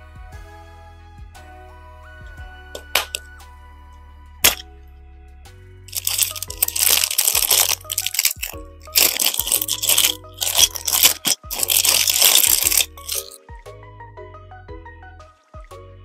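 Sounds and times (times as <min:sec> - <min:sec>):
plastic bag crinkling: 0:05.9 - 0:13.4.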